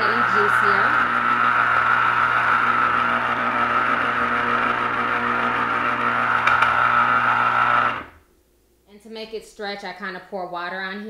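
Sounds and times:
juicer motor whirring: 0.0 - 8.2.

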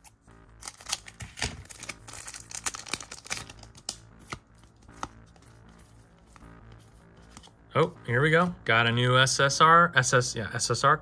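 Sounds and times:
card pack tearing and clicking: 0.0 - 5.4.

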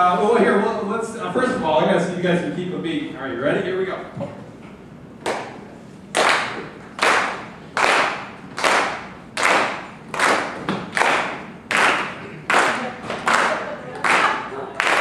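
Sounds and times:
audience clapping in a steady beat: 5.2 - 15.0.

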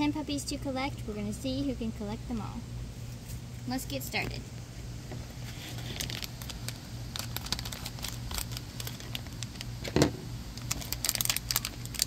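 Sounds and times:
foil crinkling: 5.4 - 9.8, 10.5 - 12.0.

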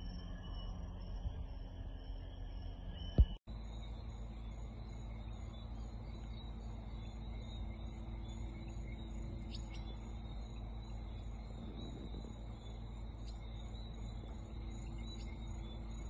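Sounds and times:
insect trilling: 3.6 - 16.0
low rumble: 6.1 - 16.0.

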